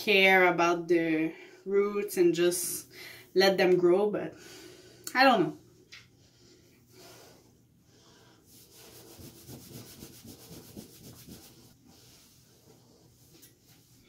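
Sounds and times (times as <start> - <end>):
towel rubbing hair: 8.2 - 14.0.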